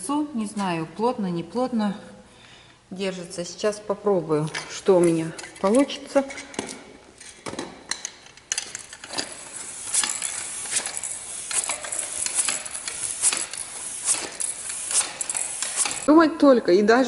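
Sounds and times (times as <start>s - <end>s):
hand pump inflating tyre: 9.0s - 16.1s.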